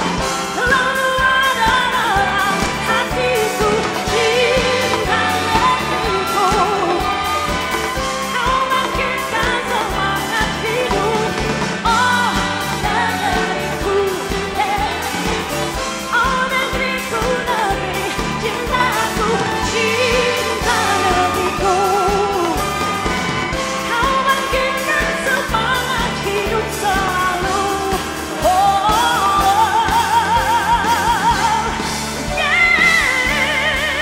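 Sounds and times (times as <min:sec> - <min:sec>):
band and orchestra accompaniment: 0:00.0 - 0:34.0
woman singing a ballad: 0:00.0 - 0:34.0
choir singing: 0:03.0 - 0:10.7.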